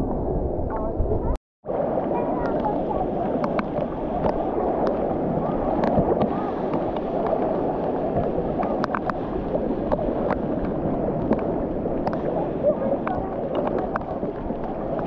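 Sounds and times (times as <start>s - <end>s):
water sloshing and churning: 0.0s - 15.0s
clicks: 3.4s - 5.0s, 8.2s - 12.3s.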